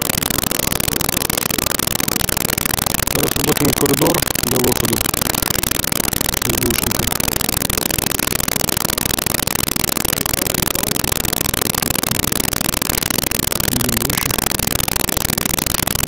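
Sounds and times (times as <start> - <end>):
person calling out: 3.1 - 5.1, 6.5 - 7.0, 13.7 - 14.4.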